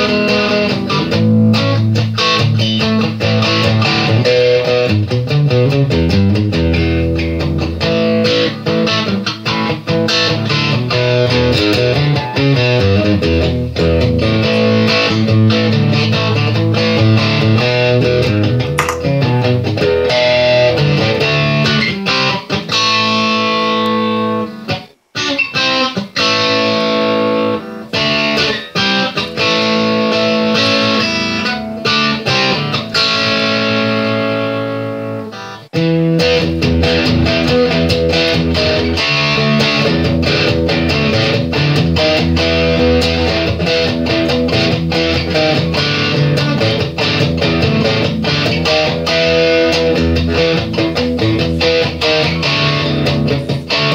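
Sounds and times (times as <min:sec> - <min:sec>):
guitar-led background music: 0:00.0 - 0:53.9.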